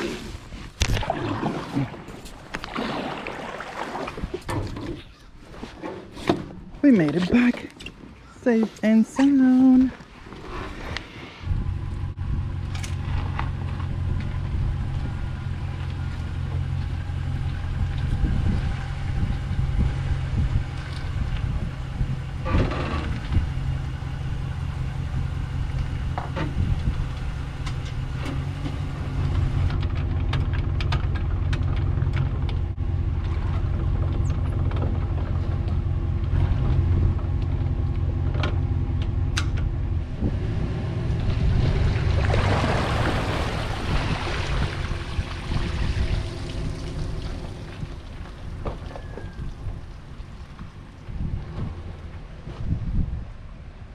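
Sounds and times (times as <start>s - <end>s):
engine idling: 11.5s - 40.3s.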